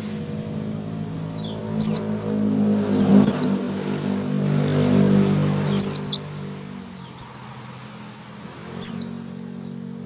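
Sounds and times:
bird chirps sliding down: 1.3s - 2.1s, 3.1s - 3.6s, 5.6s - 6.2s, 7.0s - 7.5s, 8.6s - 9.2s.

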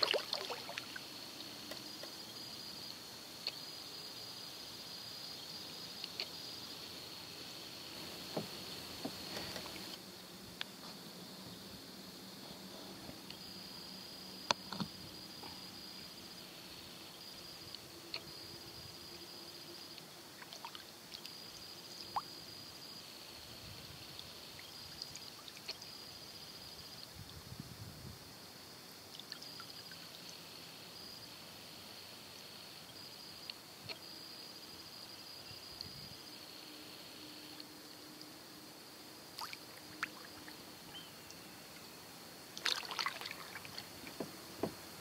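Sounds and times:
water dripping: 0.0s - 1.0s, 42.6s - 44.2s
water plops: 0.0s - 1.0s, 42.6s - 44.2s
water splashing: 0.0s - 1.1s, 39.4s - 40.7s, 42.6s - 44.8s
small fish dimpling water: 0.0s - 1.9s, 19.8s - 22.5s, 39.3s - 41.5s, 42.6s - 44.1s.

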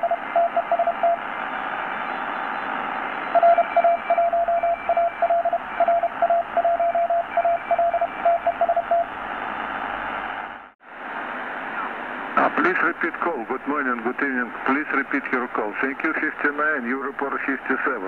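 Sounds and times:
fainter higher morse signal: 0.0s - 1.2s, 1.9s - 9.1s
morse code tone: 0.0s - 1.2s, 3.3s - 9.1s
radio band hiss: 11.2s - 18.0s.

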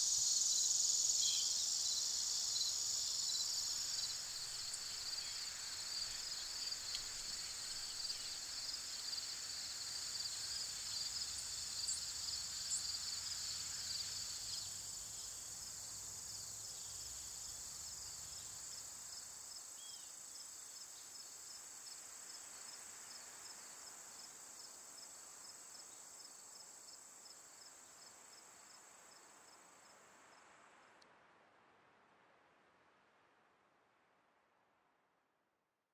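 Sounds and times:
insects chirping shrilly: 0.0s - 15.3s.

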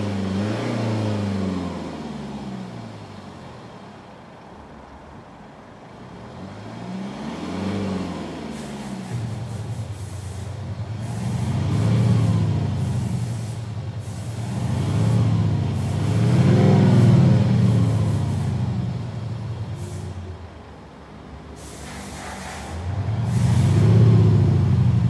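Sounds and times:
car engine revving: 6.4s - 19.2s, 22.4s - 25.0s
car engine idling: 8.5s - 21.7s.

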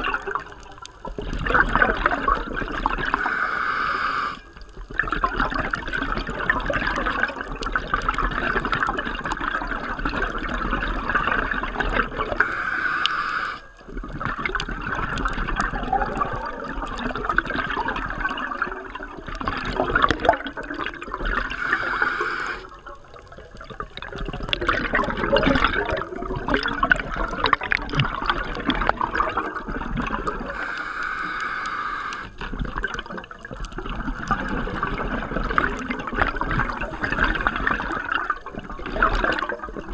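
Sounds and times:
bubbling exhale: 2.8s - 4.6s, 12.1s - 15.0s, 21.1s - 22.8s, 27.6s - 33.0s
regulator hissing inhale: 3.1s - 4.5s, 12.4s - 13.8s, 21.5s - 22.7s, 30.4s - 32.4s.

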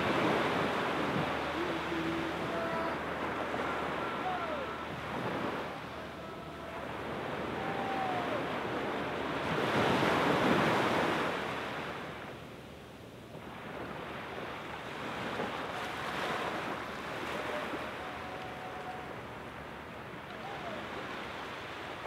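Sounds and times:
gentle surf on sandy beach: 0.0s - 22.0s.

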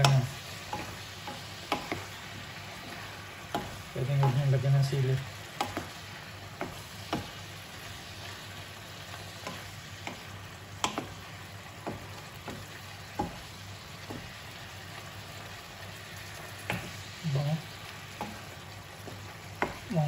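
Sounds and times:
wooden spatula knocking pan: 0.0s - 2.2s, 2.8s - 4.7s, 5.5s - 7.4s, 9.2s - 14.5s, 16.4s - 17.2s, 17.8s - 20.0s
food sizzling in a wok: 0.0s - 20.0s.

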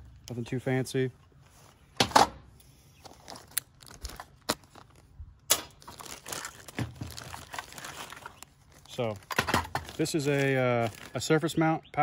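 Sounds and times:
plastic bag crinkling: 3.1s - 11.5s.

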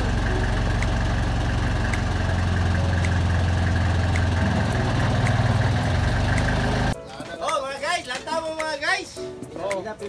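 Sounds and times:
boat engine droning: 0.0s - 7.0s.

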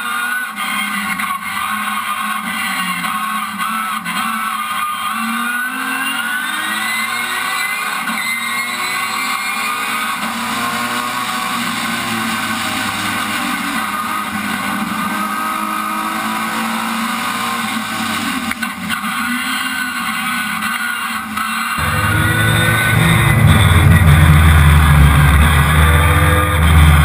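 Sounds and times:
racing car engine revving: 21.8s - 27.0s.

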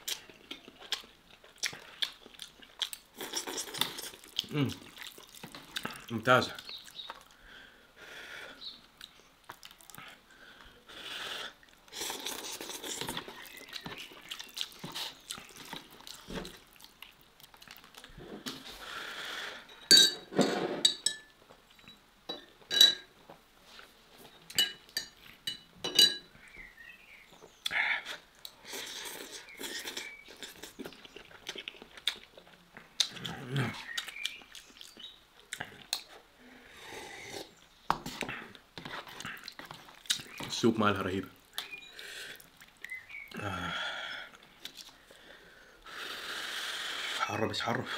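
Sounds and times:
slurping and chewing noodles: 0.0s - 6.1s, 10.9s - 19.4s, 28.0s - 36.2s, 36.8s - 40.5s.

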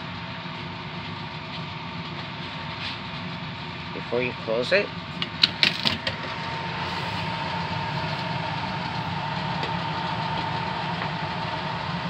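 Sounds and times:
vent grille clicking shut: 5.2s - 6.3s.

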